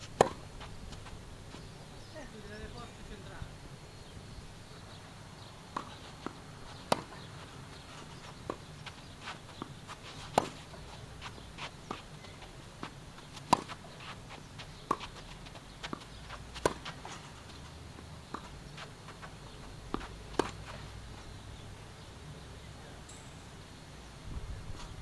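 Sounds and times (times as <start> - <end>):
racket striking tennis ball: 0.2 - 0.4, 5.7 - 7.2, 9.6 - 10.9, 15.9 - 17.4.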